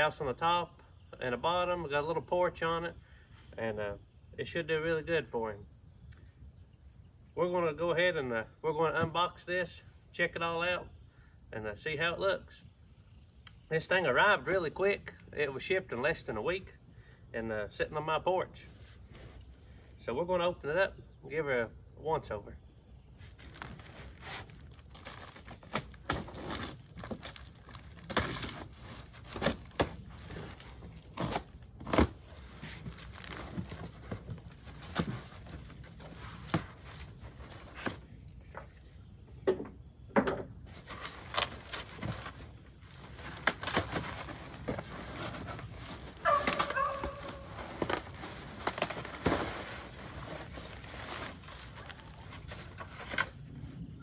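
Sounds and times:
cardboard box flaps crinkling: 0:23.2 - 0:38.1, 0:40.7 - 0:53.3.

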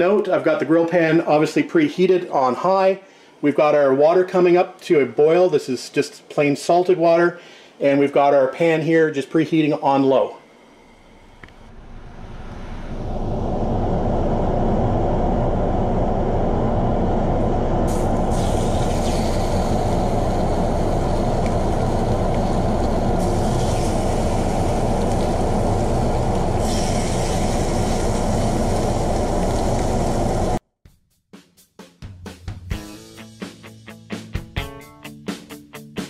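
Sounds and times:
low rushing noise: 0:10.4 - 0:30.6.

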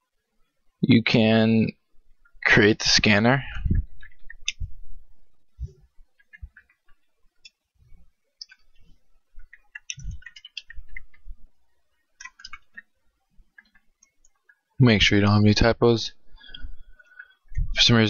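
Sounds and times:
computer keyboard keys clicking: 0:09.4 - 0:11.2, 0:12.2 - 0:12.9.

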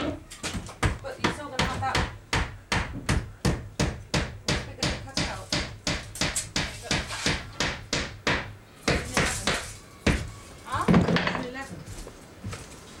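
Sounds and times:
hammer striking nails: 0:00.8 - 0:10.3.

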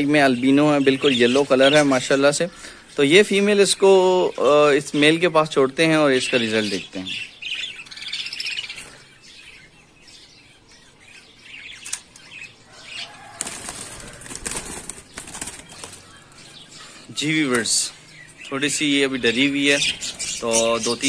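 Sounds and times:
budgerigar wings flapping: 0:13.2 - 0:16.1.

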